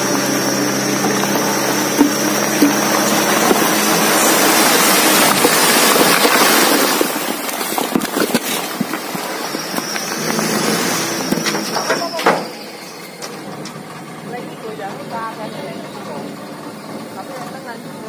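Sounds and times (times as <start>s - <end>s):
sand and earth pouring: 0.0s - 13.2s
truck engine running: 0.0s - 18.0s
stones clattering: 0.3s - 12.3s.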